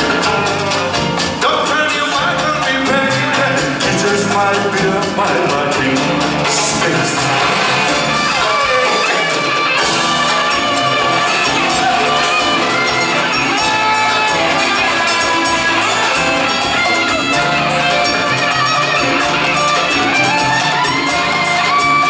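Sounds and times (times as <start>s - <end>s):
drums: 0.0s - 22.0s
electric guitar: 0.0s - 22.0s
live band playing: 0.0s - 22.0s.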